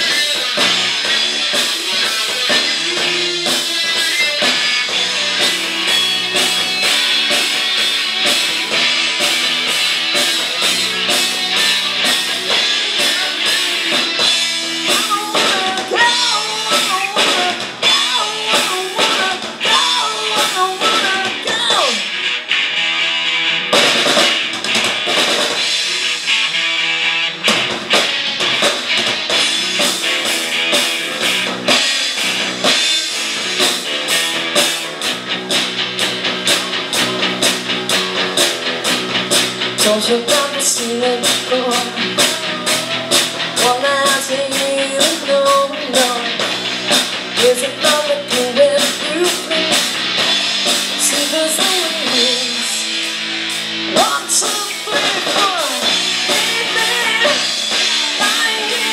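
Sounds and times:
live rock band playing: 0.0s - 58.9s
woman singing: 13.0s - 22.1s, 39.8s - 46.4s, 47.4s - 49.9s, 50.9s - 52.9s, 53.9s - 58.9s.

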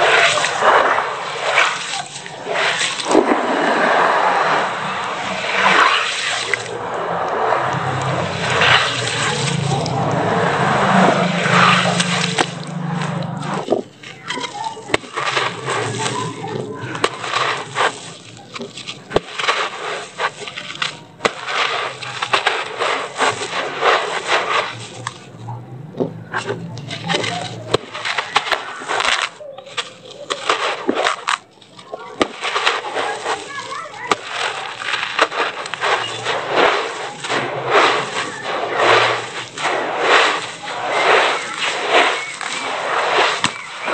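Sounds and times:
wet cement squished by hand: 0.0s - 43.9s.

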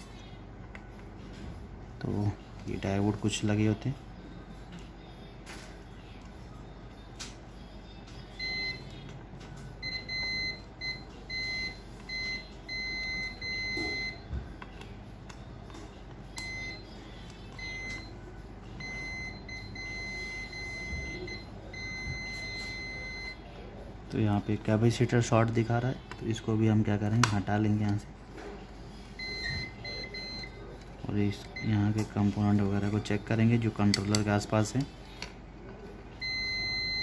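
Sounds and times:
multimeter continuity beeps: 8.0s - 14.4s, 16.3s - 23.6s, 29.2s - 34.8s, 36.1s - 37.0s.

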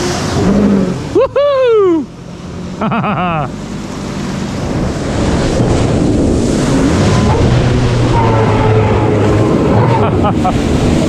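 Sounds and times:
water spraying off hull: 3.5s - 11.0s
wind rushing over microphone: 4.3s - 11.0s.

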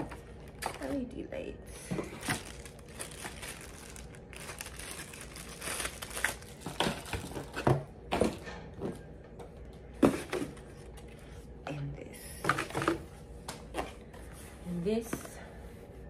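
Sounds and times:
plastic packaging crinkling: 2.0s - 7.6s.

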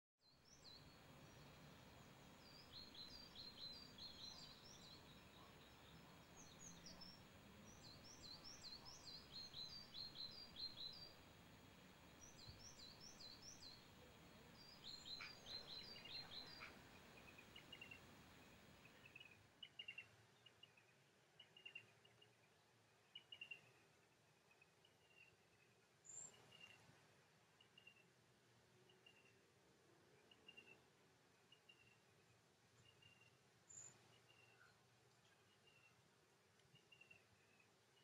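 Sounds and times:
small birds chirping: 0.2s - 38.0s
soft background hiss: 0.2s - 38.0s.

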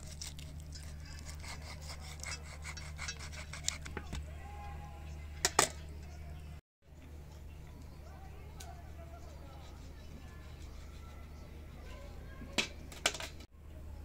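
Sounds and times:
knife sawing through raw chicken: 0.0s - 3.9s.

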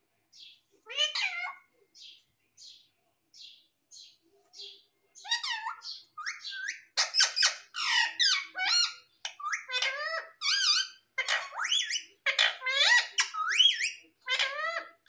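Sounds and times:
parakeet warbling chatter: 0.9s - 1.6s, 5.2s - 15.0s.

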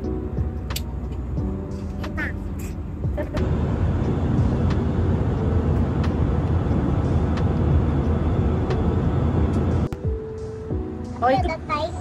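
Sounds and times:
jet engine roar inside cabin: 3.4s - 10.0s.

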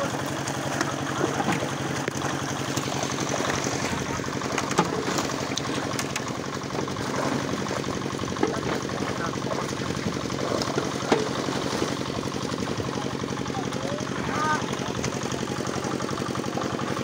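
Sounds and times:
fish splashing in a net: 0.0s - 13.4s
small engine running: 0.0s - 17.0s
water wash: 0.0s - 17.0s.

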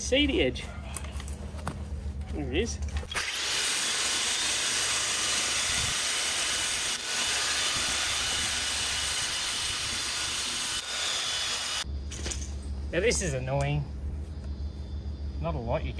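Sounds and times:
edger blade whirring on lawn edge: 3.0s - 11.8s.

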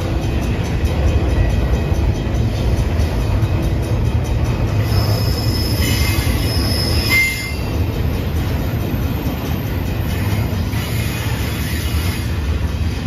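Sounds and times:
train cars rumbling past: 0.0s - 13.0s
train wheels squealing: 4.6s - 13.0s.

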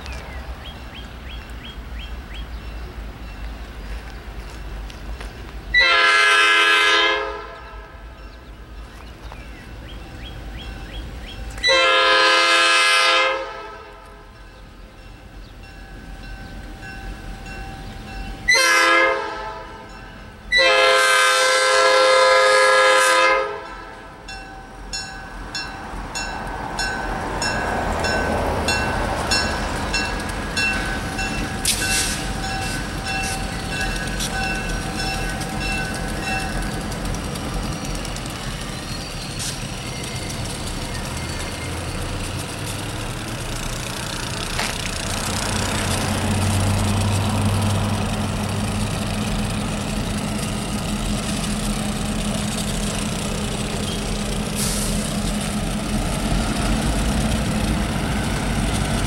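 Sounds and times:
locomotive engines: 0.0s - 59.0s
train horn blasts: 5.7s - 8.2s, 11.6s - 14.4s, 18.5s - 24.2s.

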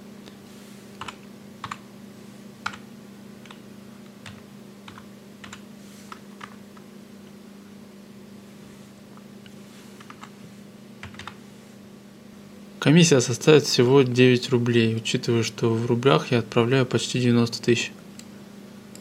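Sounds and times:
steady low hum: 0.0s - 19.0s
keyboard keystrokes: 11.0s - 11.4s.

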